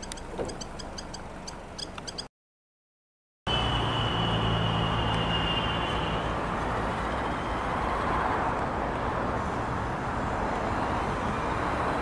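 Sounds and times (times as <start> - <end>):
vehicle motor running: 0.0 - 2.3.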